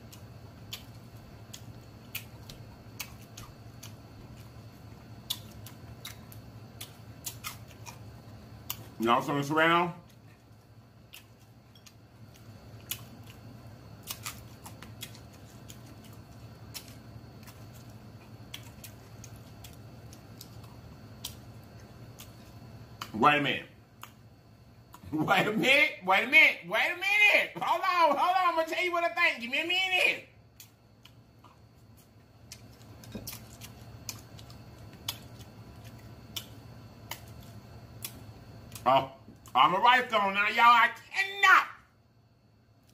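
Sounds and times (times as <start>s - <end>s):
chewing crisp pepper: 0.0s - 9.3s, 10.0s - 23.2s, 30.5s - 39.6s
steady low hum: 0.0s - 42.9s.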